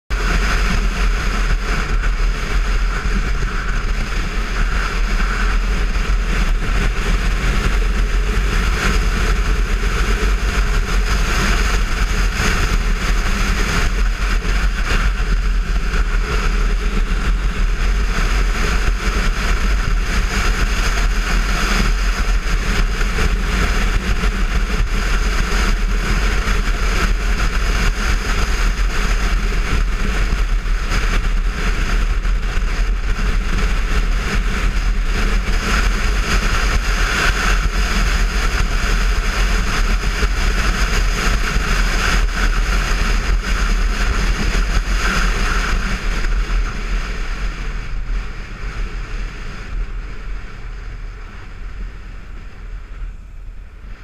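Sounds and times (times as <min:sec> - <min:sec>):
motorcycle engine running: 0:00.1 - 0:54.0
wind buffeting microphone: 0:00.1 - 0:54.0.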